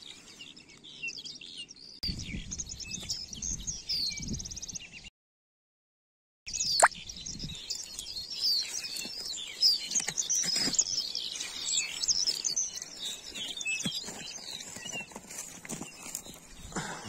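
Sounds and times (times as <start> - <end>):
songbirds twittering and singing: 0.0 - 5.1, 6.5 - 17.0
footsteps crunching on snow: 8.5 - 16.9.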